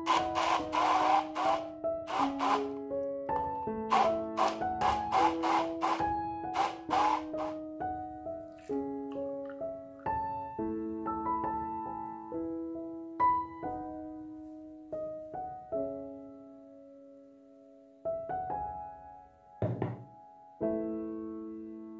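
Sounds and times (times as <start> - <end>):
piano music: 0.0 - 21.9
brief knock: 19.6 - 20.1.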